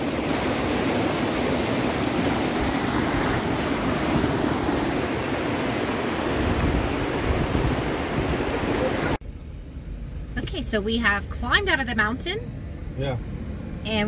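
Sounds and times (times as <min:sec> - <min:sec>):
creek water rushing: 0:00.0 - 0:09.2.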